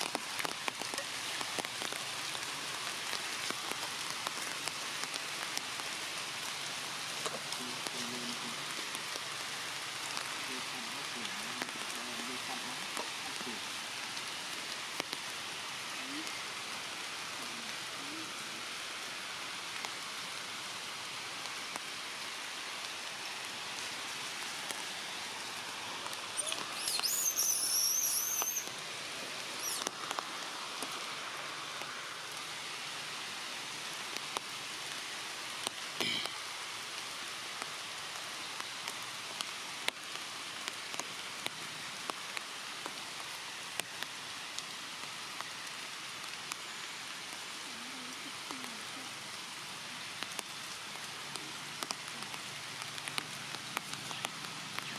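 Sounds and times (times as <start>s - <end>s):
steady rain: 0.0s - 54.9s
high wavering call: 26.3s - 28.7s.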